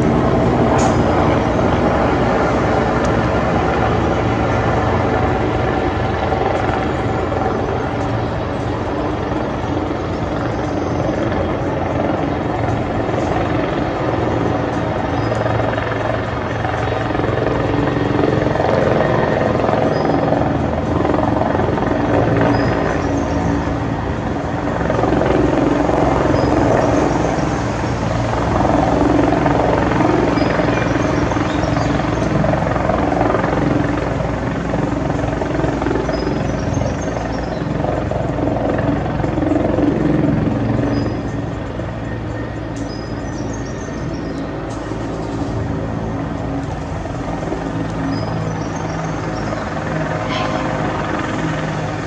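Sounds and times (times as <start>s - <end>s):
helicopter rotor thudding: 0.0s - 36.0s
turbine whine: 0.0s - 52.0s.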